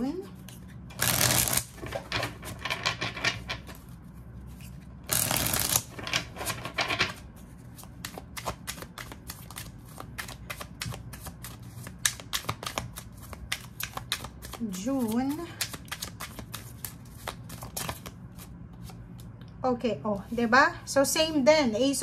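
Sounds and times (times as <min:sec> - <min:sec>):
cards riffling: 0:00.6 - 0:02.6, 0:04.5 - 0:19.0.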